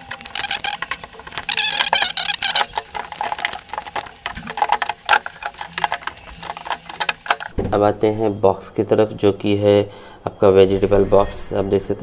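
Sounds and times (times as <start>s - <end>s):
plastic tape peeling and crinkling: 0.0s - 7.6s.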